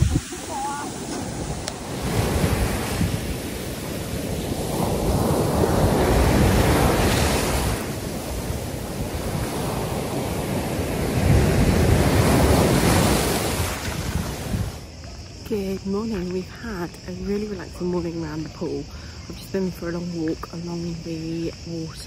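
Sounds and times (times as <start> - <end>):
sea waves breaking on shore: 0.0 - 14.9.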